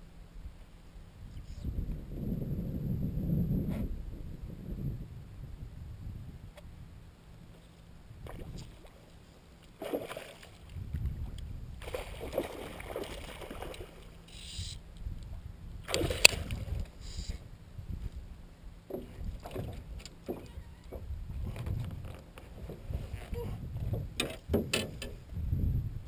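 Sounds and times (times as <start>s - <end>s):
low rumble: 1.1s - 9.4s
knocks on aluminium boat: 23.8s - 25.2s.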